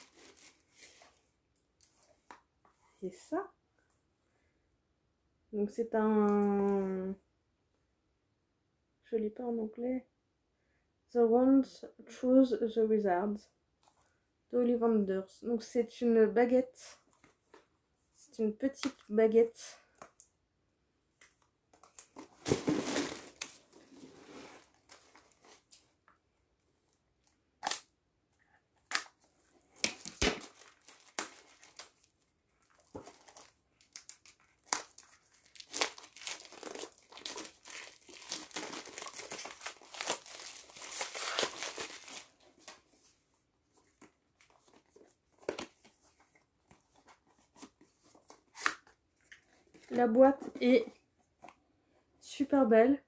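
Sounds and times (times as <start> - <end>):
plastic wrapping crinkling and tearing: 29.8 - 42.8.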